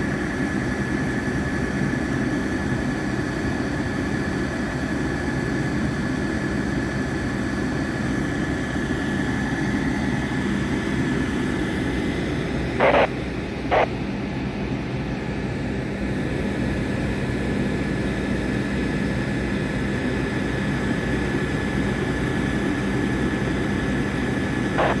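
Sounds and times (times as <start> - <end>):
engine rumble: 8.7 - 17.4, 22.0 - 25.0.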